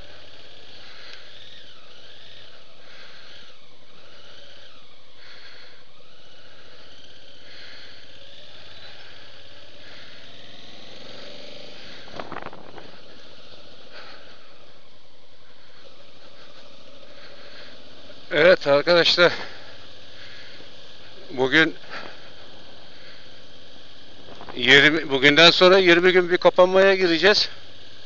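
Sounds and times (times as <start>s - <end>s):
motorcycle engine running: 0.0s - 26.1s.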